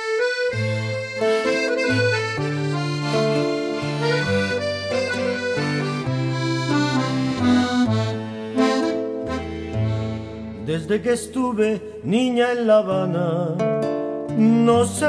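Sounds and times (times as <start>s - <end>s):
accordion playing held chords: 0.0s - 11.4s
stepping bass line: 0.5s - 11.1s.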